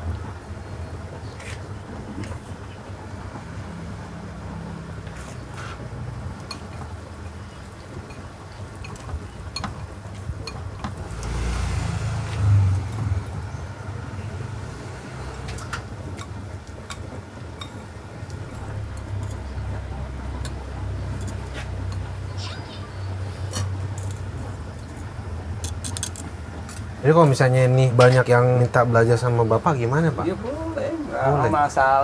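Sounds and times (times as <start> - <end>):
chopsticks clinking on ceramic bowls: 6.4 - 6.8, 20.4 - 22.1
wire strainer tapping bowls: 8.0 - 11.3, 15.5 - 19.6, 20.4 - 22.2
steady low rumble: 11.0 - 25.6.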